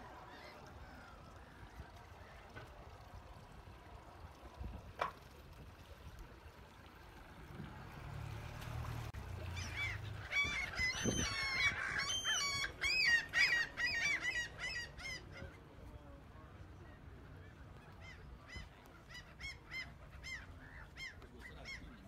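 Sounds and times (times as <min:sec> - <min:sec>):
bird calling: 0:09.5 - 0:15.6.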